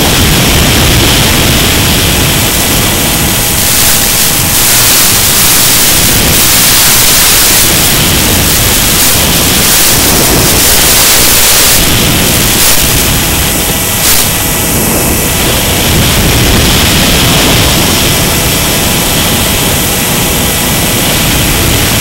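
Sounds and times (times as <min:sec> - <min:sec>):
airflow hissing over microphone: 0:00.0 - 0:22.0
electric motor tones: 0:00.0 - 0:22.0.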